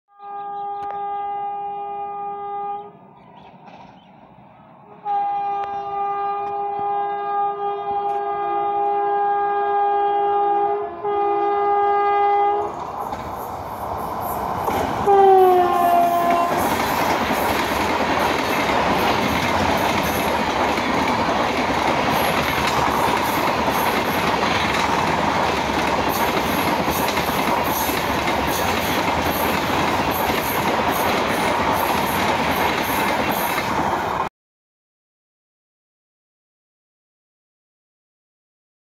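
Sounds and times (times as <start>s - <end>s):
locomotive horn blasts: 0.1s - 3.0s, 5.0s - 12.7s, 15.0s - 16.7s
train rushing past: 2.9s - 6.6s, 10.8s - 34.3s.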